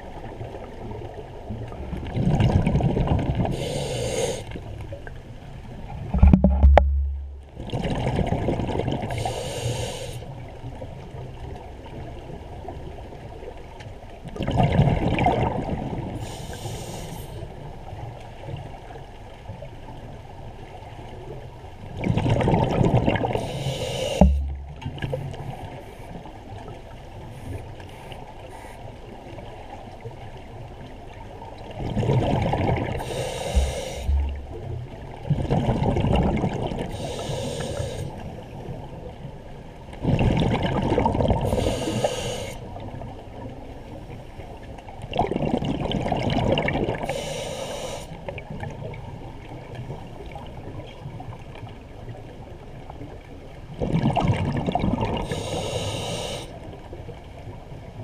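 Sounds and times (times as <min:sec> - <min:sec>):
exhaled air bubbles gurgling: 0:01.6 - 0:04.5, 0:06.0 - 0:10.2, 0:14.3 - 0:17.4, 0:21.9 - 0:25.4, 0:31.8 - 0:38.1, 0:40.0 - 0:42.9, 0:45.1 - 0:49.1, 0:53.7 - 0:56.5
faint hiss of inhaled air: 0:03.5 - 0:04.6, 0:09.1 - 0:10.3, 0:16.2 - 0:17.5, 0:23.4 - 0:24.6, 0:33.0 - 0:34.5, 0:36.9 - 0:38.2, 0:41.5 - 0:42.7, 0:47.0 - 0:48.2, 0:55.2 - 0:56.6
short dull thumps: 0:06.1 - 0:07.6, 0:24.0 - 0:25.2, 0:33.5 - 0:34.6.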